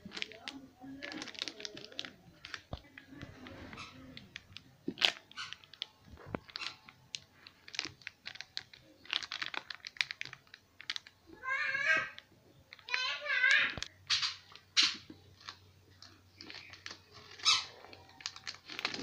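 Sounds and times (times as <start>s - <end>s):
knife crunching through foil: 16.4s - 19.0s.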